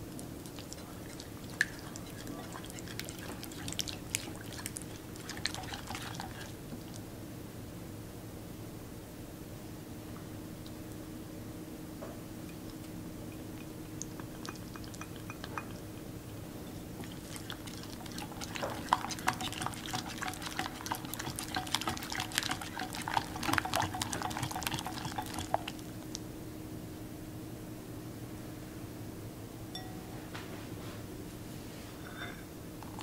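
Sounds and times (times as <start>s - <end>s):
whisk ticking against bowl: 0.6s - 6.6s, 13.3s - 16.0s, 17.0s - 25.9s.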